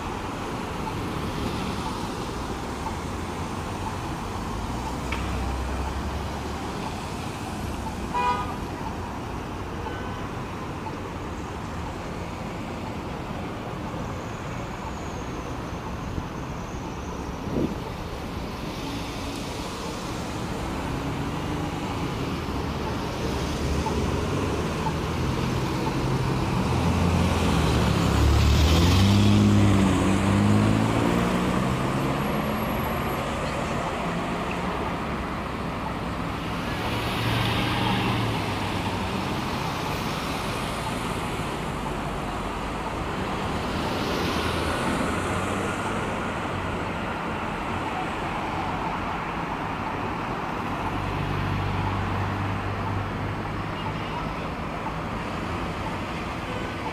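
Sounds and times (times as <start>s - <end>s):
road traffic hiss: 0.0s - 56.9s
pickup truck engine passing: 26.8s - 33.2s.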